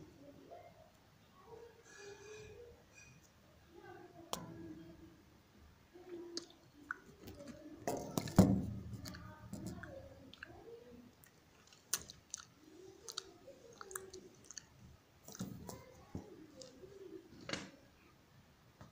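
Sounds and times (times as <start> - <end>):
cat chewing food: 11.2 - 16.8.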